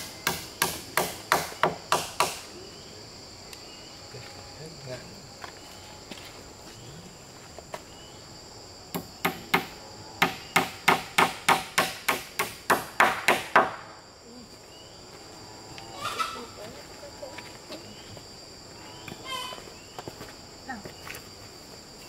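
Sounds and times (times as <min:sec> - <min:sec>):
hammer striking a nail: 0:00.0 - 0:02.4, 0:08.9 - 0:13.8
high insect drone: 0:00.0 - 0:22.0.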